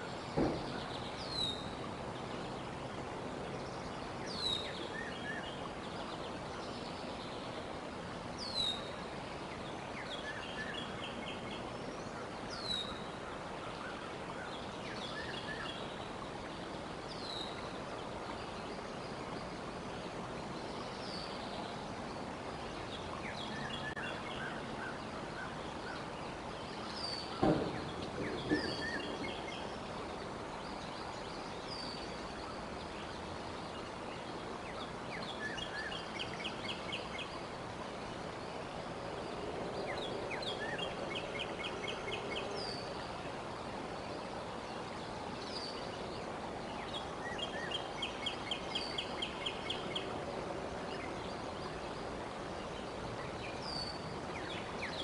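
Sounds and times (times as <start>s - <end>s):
background hiss: 0.0s - 55.0s
songbirds singing: 0.0s - 55.0s
sharp knocks: 0.4s - 0.8s, 27.4s - 29.1s.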